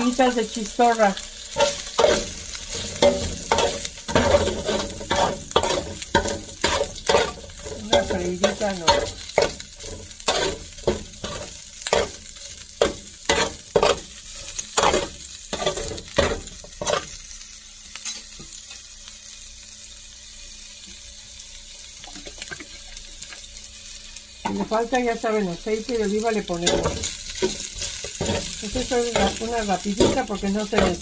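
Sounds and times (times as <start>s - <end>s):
sausage sizzling in oil: 0.0s - 31.0s
spatula scraping a metal pan: 1.5s - 17.1s.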